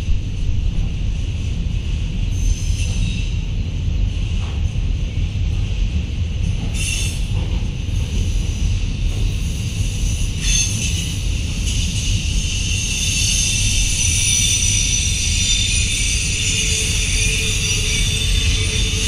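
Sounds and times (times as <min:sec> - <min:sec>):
freight train rumbling past: 0:00.0 - 0:19.0
metallic wheel squealing: 0:10.3 - 0:19.0.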